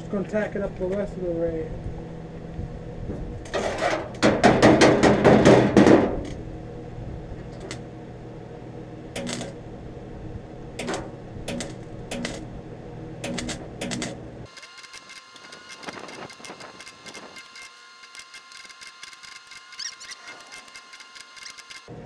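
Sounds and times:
arc welder crackling: 7.4s - 7.9s, 9.1s - 9.7s, 10.7s - 12.6s, 13.2s - 21.9s.

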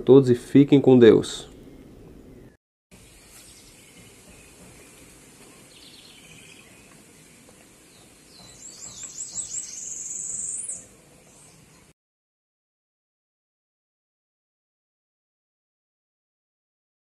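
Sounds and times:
birds chirping: 1.1s - 12.0s.

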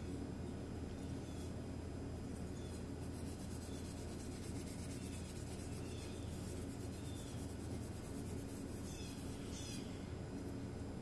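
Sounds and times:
steady low hum: 0.0s - 11.0s
abrasive pad scrubbing metal: 3.0s - 9.6s.

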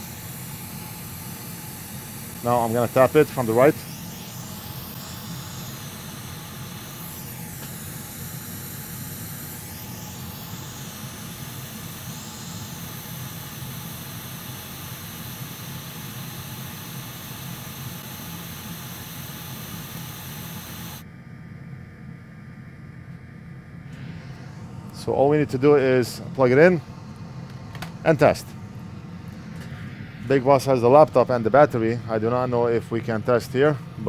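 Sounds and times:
hot air station hissing: 0.0s - 21.0s, 23.9s - 34.0s.

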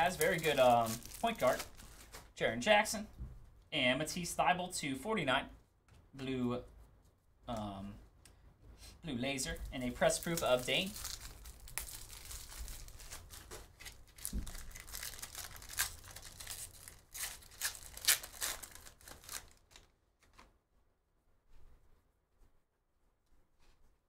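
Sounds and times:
card pack wrapper crinkling and tearing: 0.0s - 2.3s, 9.4s - 20.5s.

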